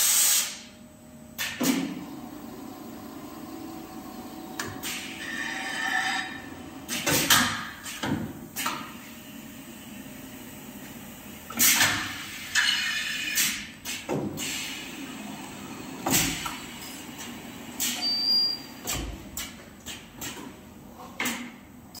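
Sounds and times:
pneumatic hiss and clunk: 0.0s - 0.7s, 1.4s - 2.0s, 4.6s - 9.2s, 11.5s - 15.0s, 16.0s - 21.6s
machine hum: 0.8s - 7.2s, 14.6s - 19.9s.

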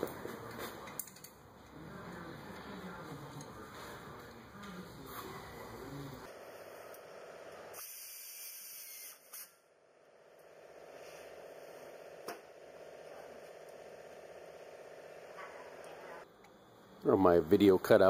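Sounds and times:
faint shop hum: 0.0s - 18.0s
compressed air hiss: 7.8s - 9.5s.

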